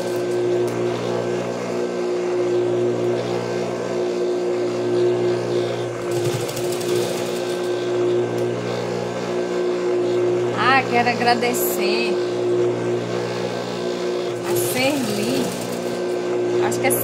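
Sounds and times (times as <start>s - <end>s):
sewing machine stitching: 6.0s - 7.8s, 14.3s - 16.2s.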